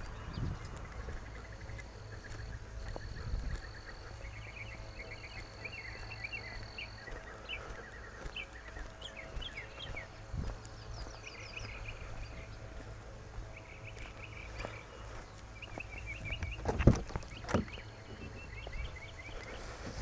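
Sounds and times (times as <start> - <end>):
low rumble: 0.0 - 7.9
small birds chirping: 0.0 - 20.0.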